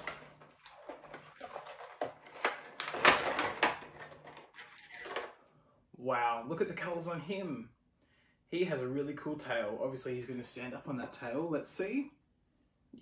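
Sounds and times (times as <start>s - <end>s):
cardboard and plastic crinkling: 0.0s - 5.3s.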